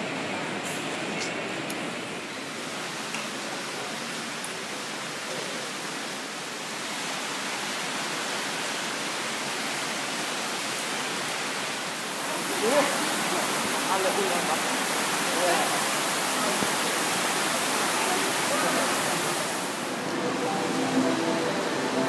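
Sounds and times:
heavy rain pouring: 0.0 - 22.0.

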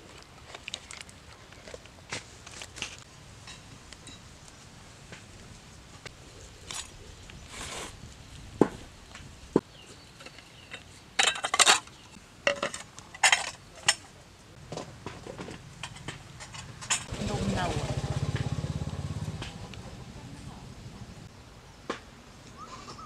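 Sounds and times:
dishes clattering: 10.7 - 11.9, 12.5 - 14.0.

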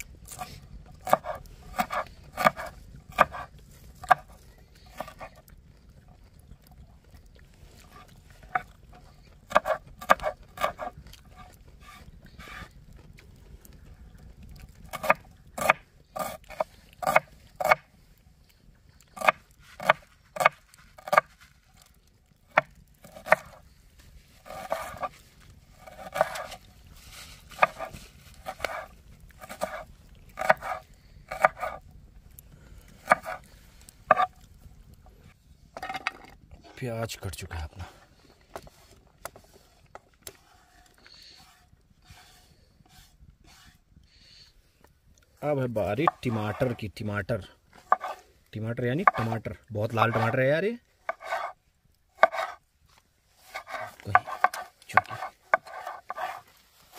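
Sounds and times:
knife chopping on wooden board: 0.4 - 4.3, 9.5 - 11.5, 14.9 - 17.8, 19.2 - 21.3, 22.5 - 23.6, 25.8 - 26.5, 27.6 - 29.8, 30.4 - 31.8, 33.0 - 33.4, 47.8 - 48.2, 49.0 - 49.4, 51.1 - 51.5, 52.2 - 52.6, 53.5 - 56.4
utensil scraping: 24.3 - 31.8, 38.4 - 43.8, 45.8 - 46.9, 47.7 - 48.3, 48.9 - 51.6, 52.2 - 52.6, 53.3 - 56.9.

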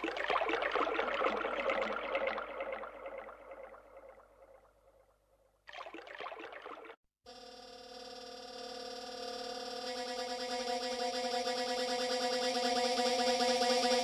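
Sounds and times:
electronic splashing water-like noise: 0.0 - 4.3, 5.7 - 7.0.

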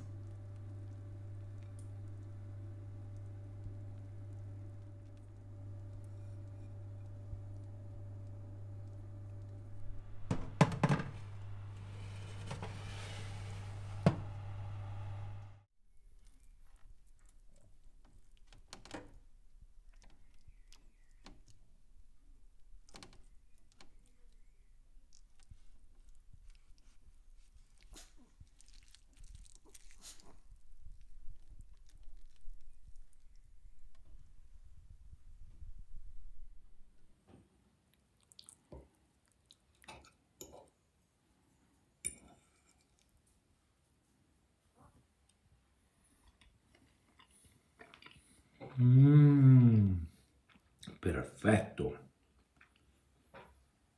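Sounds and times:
spatula scraping and tapping tray: 10.3 - 14.6.

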